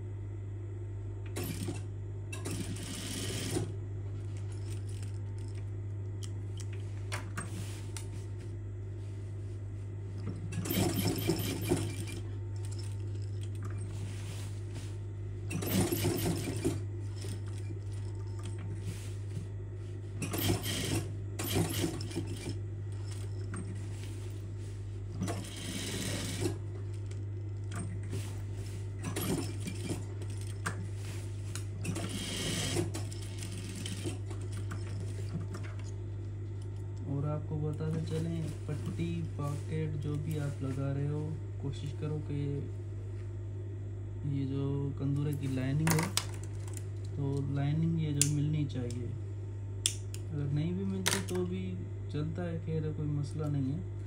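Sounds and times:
sewing machine stitching: 0:01.3 - 0:03.7, 0:10.5 - 0:13.0, 0:15.5 - 0:17.8, 0:20.2 - 0:23.6, 0:25.2 - 0:26.6, 0:29.0 - 0:30.5, 0:31.9 - 0:35.0.

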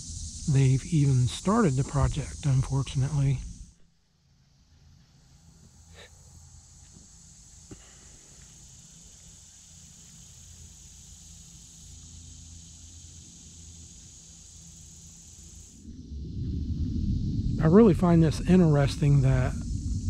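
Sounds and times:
insect chorus shrill hiss: 0:00.0 - 0:20.0
low rumble: 0:15.8 - 0:20.0.

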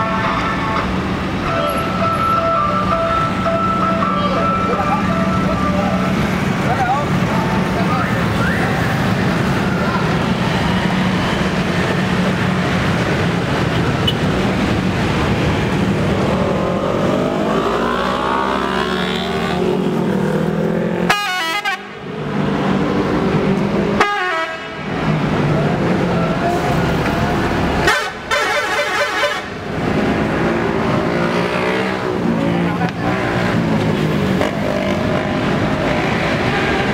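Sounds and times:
bus diesel engine: 0:00.0 - 0:36.9
multi-tone horn blasts: 0:21.1 - 0:22.0, 0:24.0 - 0:24.9, 0:27.8 - 0:29.6.

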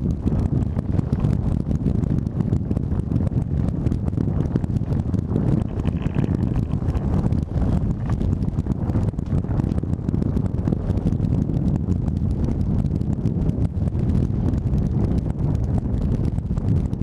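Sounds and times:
wind buffeting microphone: 0:00.0 - 0:17.0
boat hull running through chop: 0:03.2 - 0:10.1.

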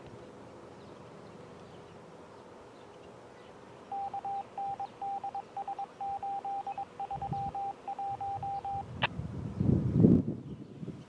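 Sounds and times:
radio tone beeping: 0:03.9 - 0:08.9.

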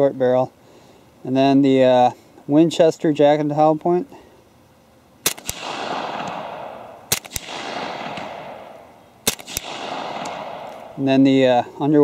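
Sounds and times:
suppressed pistol shots: 0:05.2 - 0:11.0
gunshot echo: 0:05.2 - 0:11.2
sharp crack: 0:05.2 - 0:11.4.

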